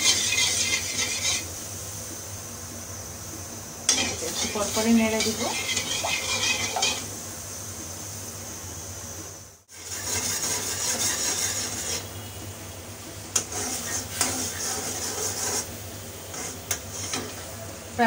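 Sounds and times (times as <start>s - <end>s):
metal spoon scraping pan: 0.0s - 1.5s, 3.9s - 7.1s, 9.7s - 12.1s, 13.3s - 17.4s.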